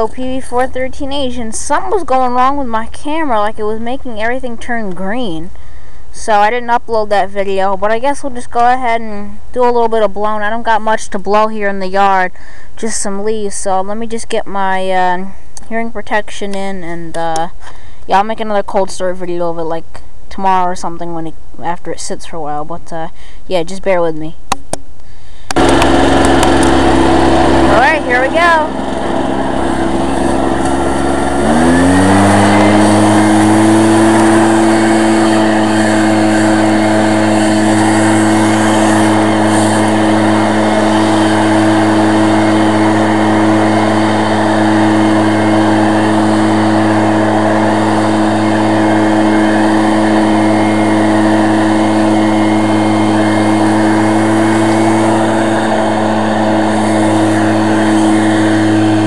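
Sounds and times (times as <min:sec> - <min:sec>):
leaf blower engine revving: 0:00.0 - 0:06.6, 0:25.2 - 0:59.0.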